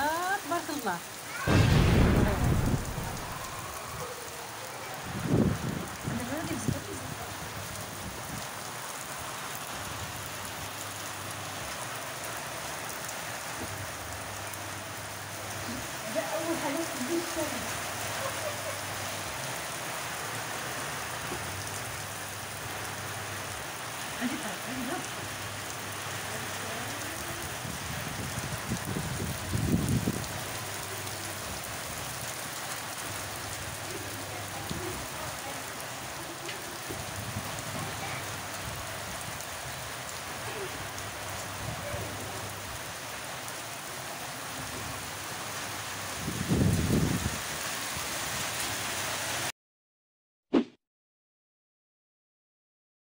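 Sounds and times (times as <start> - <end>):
heavy rain on leaves and soil: 0.0 - 49.5
low rumble: 1.5 - 3.8.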